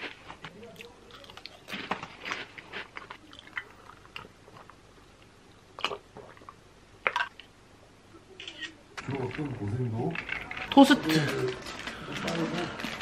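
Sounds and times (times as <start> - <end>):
person chewing crunchy food: 0.0 - 5.0, 5.8 - 7.4.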